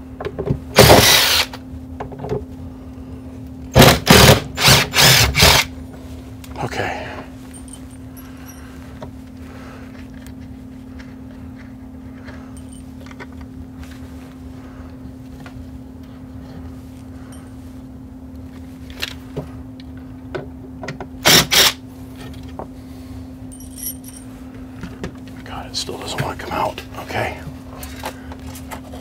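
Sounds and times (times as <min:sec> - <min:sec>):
steady low hum: 0:00.0 - 0:29.0
clicks and handling noise: 0:08.9 - 0:16.1, 0:18.3 - 0:21.2.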